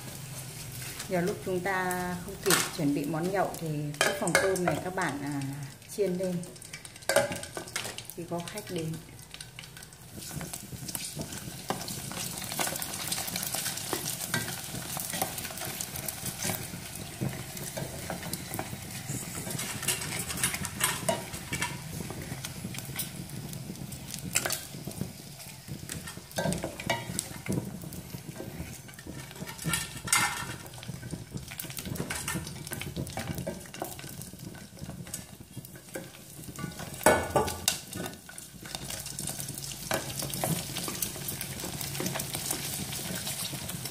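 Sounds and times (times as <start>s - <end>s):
oil sizzling in a pot: 0.0s - 43.9s
chopsticks scraping a pot: 10.1s - 23.3s, 24.2s - 43.8s.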